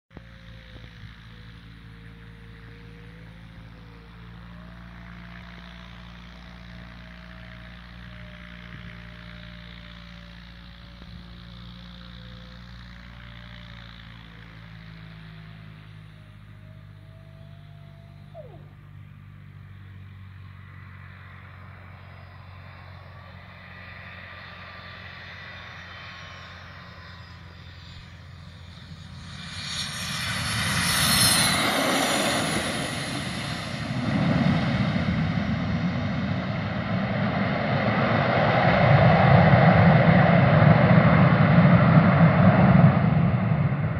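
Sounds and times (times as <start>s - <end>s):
jet engines whining: 20.6s - 43.9s.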